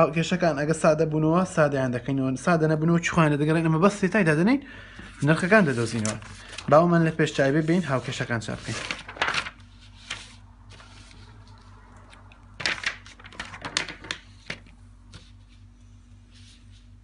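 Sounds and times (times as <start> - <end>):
paper sheets rustling and slapping: 5.0 - 11.7, 12.6 - 15.7.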